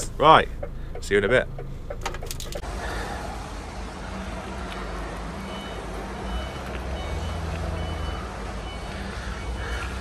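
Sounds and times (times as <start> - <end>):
reversing alarm beeping: 5.4 - 9.6.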